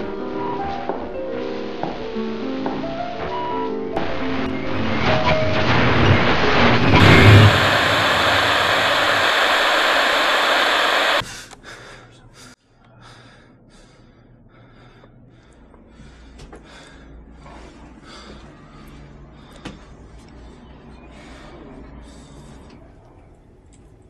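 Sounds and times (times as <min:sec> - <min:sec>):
loud steady rushing noise: 0:00.0 - 0:11.2
man breathing heavily: 0:11.2 - 0:22.9.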